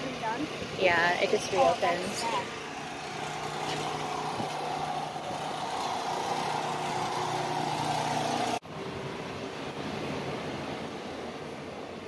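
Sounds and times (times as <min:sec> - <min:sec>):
motor droning hum: 0:00.0 - 0:08.6.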